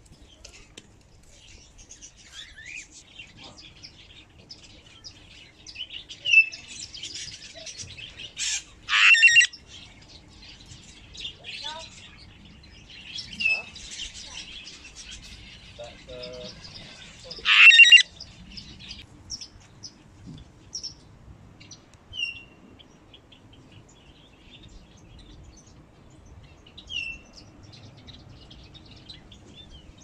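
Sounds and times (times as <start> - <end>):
small birds chirping: 0.0 - 30.0
parrot squawk: 8.4 - 9.5, 17.4 - 18.1.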